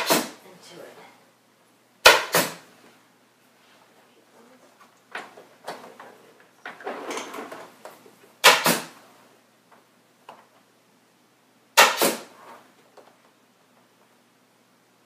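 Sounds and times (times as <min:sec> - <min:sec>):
staple gun firing: 0:02.0 - 0:02.6, 0:08.4 - 0:08.9, 0:11.8 - 0:12.2.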